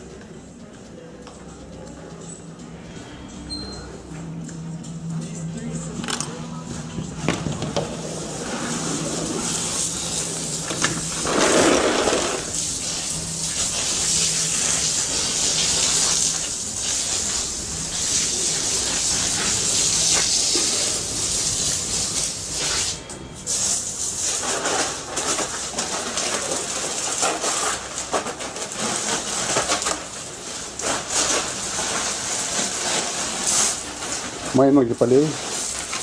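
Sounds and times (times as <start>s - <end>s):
hose water spraying: 7.8s - 36.0s.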